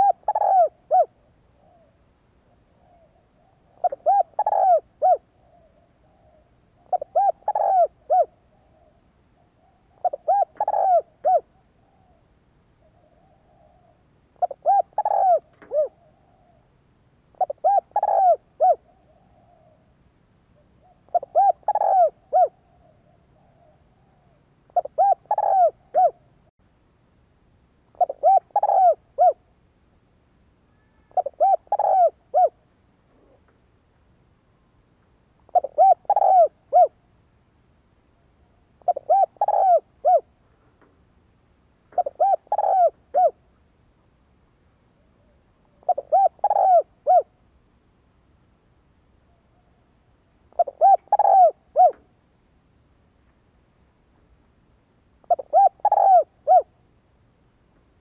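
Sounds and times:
dove cooing: 0:00.0 - 0:20.0, 0:20.6 - 0:26.5, 0:27.9 - 0:29.5, 0:30.7 - 0:33.5, 0:35.4 - 0:37.1, 0:38.4 - 0:40.5, 0:41.9 - 0:43.5, 0:45.0 - 0:47.4, 0:49.3 - 0:52.2, 0:55.2 - 0:56.8.

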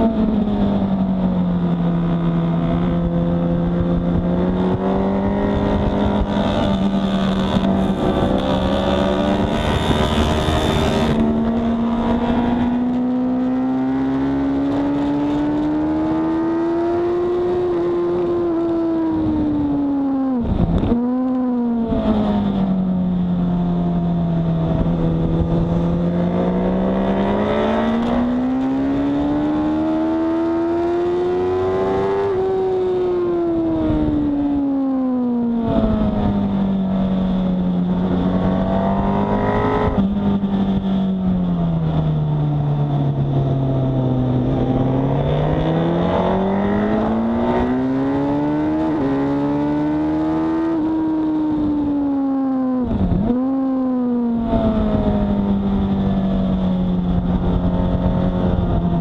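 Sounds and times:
wind rush: 0:00.0 - 0:13.5, 0:17.5 - 0:23.2, 0:23.9 - 0:30.4, 0:31.0 - 0:34.8, 0:52.8 - 0:59.0.

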